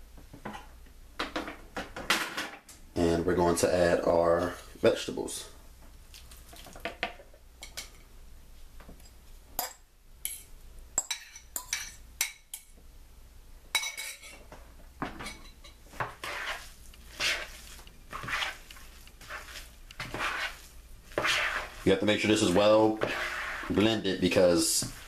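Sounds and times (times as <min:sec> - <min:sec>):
utensil clinking on mixing bowl: 0:09.6 - 0:12.7.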